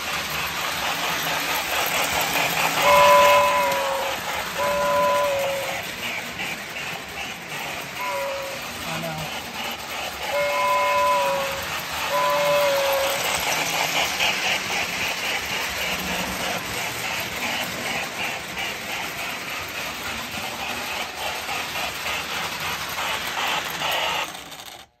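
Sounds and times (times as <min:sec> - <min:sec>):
model train chuffing: 0:00.0 - 0:25.0
wheels rattling on rails: 0:00.0 - 0:25.0
two-tone steam whistle: 0:02.8 - 0:05.9, 0:08.0 - 0:08.8, 0:10.3 - 0:13.4.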